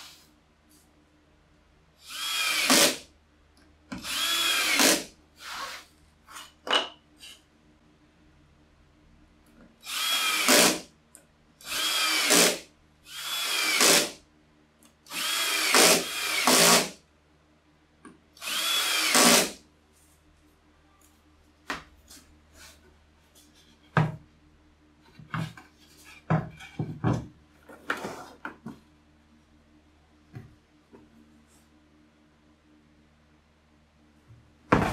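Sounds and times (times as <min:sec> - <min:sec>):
cordless drill driving screws: 0:02.0 - 0:03.0, 0:04.0 - 0:05.0, 0:09.8 - 0:10.8, 0:11.7 - 0:14.1, 0:15.1 - 0:16.9, 0:18.4 - 0:19.6.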